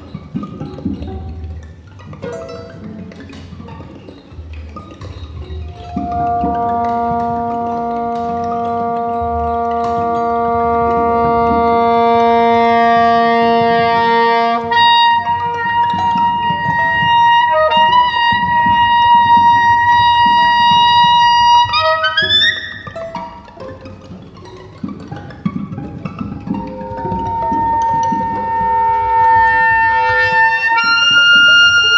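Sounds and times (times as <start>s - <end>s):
soprano saxophone long notes: 5.8s - 22.2s, 27.1s - 31.9s.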